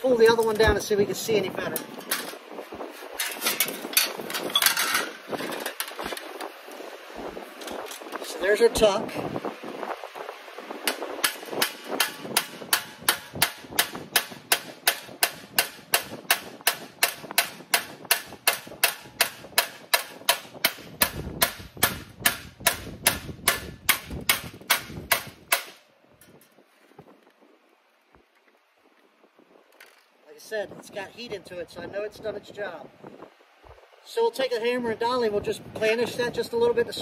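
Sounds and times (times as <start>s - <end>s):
hammer striking sheet metal: 10.9s - 25.8s.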